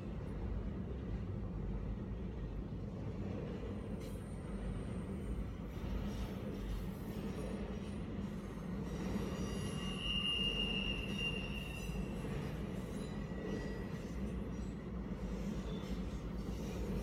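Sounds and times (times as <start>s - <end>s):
freight train rumbling past: 0.0s - 17.0s
high wheel squeal: 9.1s - 13.9s.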